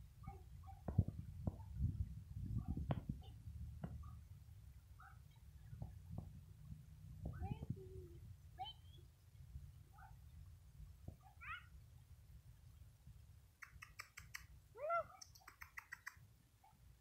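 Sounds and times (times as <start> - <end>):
sharp chirping ticks: 13.6 - 14.6, 15.2 - 16.2.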